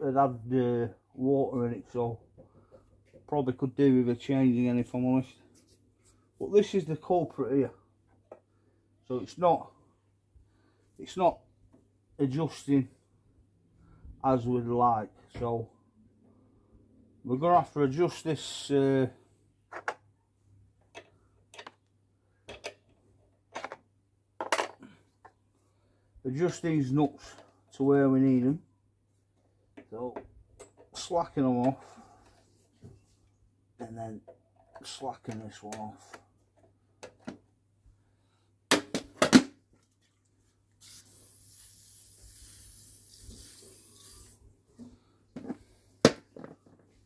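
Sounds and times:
aerosol can spraying: 40.8s - 44.4s.

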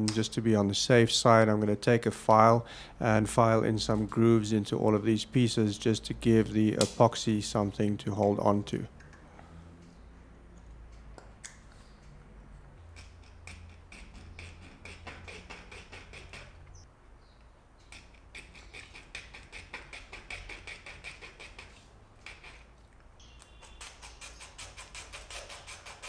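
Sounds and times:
hand file rasping on plastic: 12.9s - 16.8s, 17.8s - 22.7s, 23.7s - 26.0s.

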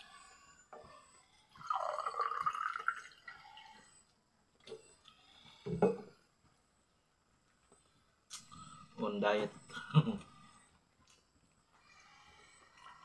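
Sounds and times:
liquid pouring into a glass: 1.6s - 3.7s.

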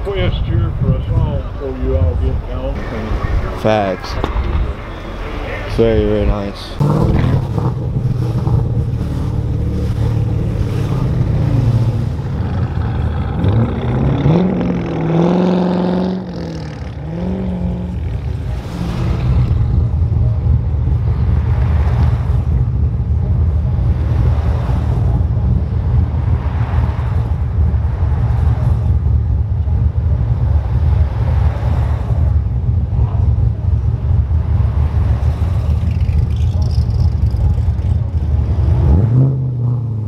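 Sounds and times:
car engine rumbling and revving: 0.0s - 40.0s.

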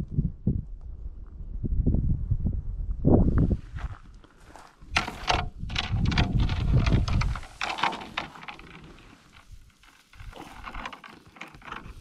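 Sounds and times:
dry grass rustling and crackling: 3.7s - 12.0s
low microphone rumble: 4.9s - 7.8s.

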